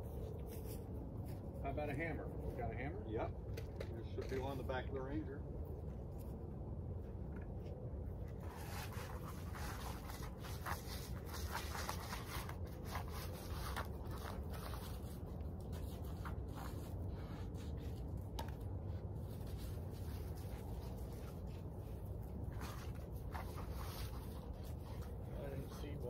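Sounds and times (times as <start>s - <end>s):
steady low rumble: 0.0s - 26.0s
light scrapes and clicks: 3.5s - 4.9s.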